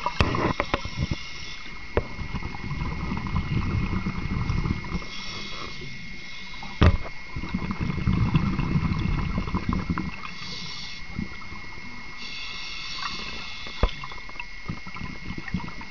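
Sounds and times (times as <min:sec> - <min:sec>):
scuba regulator inhalation hiss: 0:00.0 - 0:01.8, 0:04.8 - 0:06.8, 0:10.1 - 0:11.3, 0:12.1 - 0:14.3
exhaled air bubbling: 0:00.0 - 0:15.9
faint steady whine: 0:00.0 - 0:15.9.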